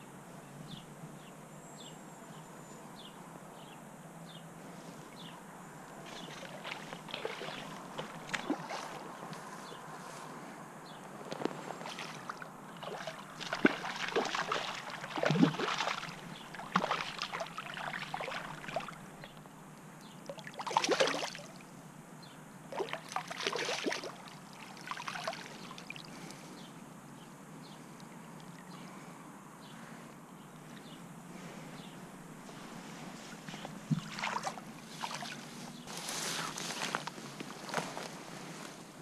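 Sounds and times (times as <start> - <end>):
faint steady hiss: 0.0 - 39.0
fish splashing at the surface: 6.1 - 9.1, 11.8 - 19.2, 20.3 - 21.6, 22.7 - 26.0, 33.6 - 35.4.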